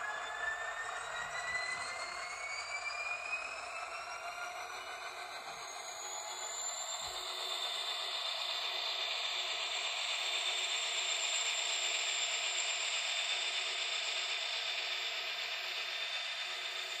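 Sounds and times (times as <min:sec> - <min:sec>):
model locomotive motor whirring: 0:05.0 - 0:17.0.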